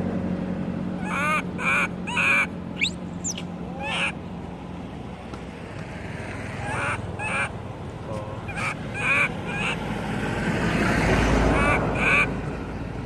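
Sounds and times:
baby monkey crying: 1.0 - 4.2, 6.6 - 7.5, 8.4 - 9.8.

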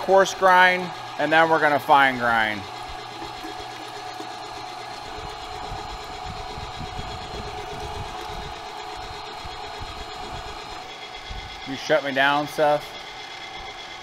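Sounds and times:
meat grinder motor whine: 0.0 - 14.0.

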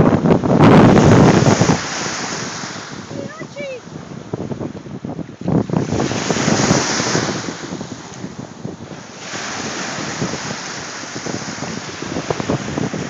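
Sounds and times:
waves washing on beach: 0.0 - 13.0
wind buffeting microphone: 0.0 - 13.0.

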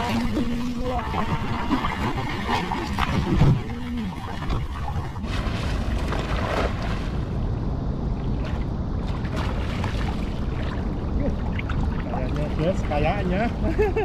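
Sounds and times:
water washing: 0.0 - 7.2
water splashing: 0.0 - 7.3, 8.2 - 13.6.

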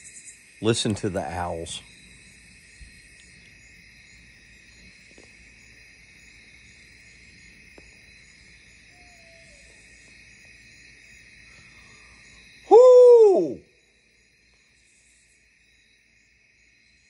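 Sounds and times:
crickets trilling: 0.0 - 17.0
faint short falling call: 12.7 - 13.6.

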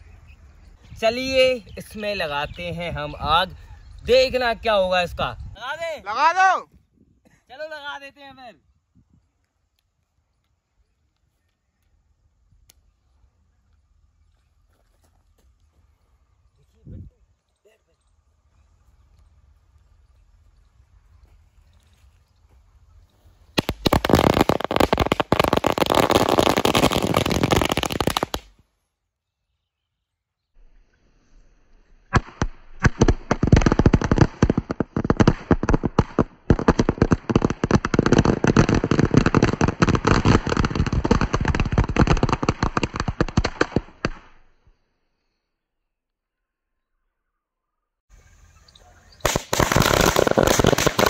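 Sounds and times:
firecracker string crackling: 23.6 - 28.6, 32.1 - 44.5, 49.2 - 51.0.

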